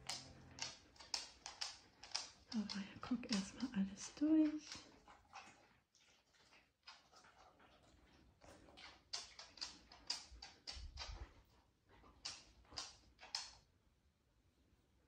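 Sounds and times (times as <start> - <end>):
dog claws clicking on floor: 0.0 - 5.6, 8.4 - 13.7.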